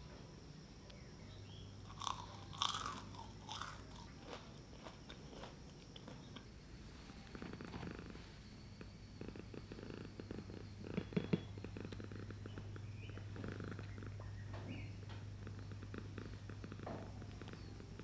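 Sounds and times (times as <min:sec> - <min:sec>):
crisp churro bitten crunching: 0:01.9 - 0:06.4
soft chewing crunches: 0:01.9 - 0:06.5.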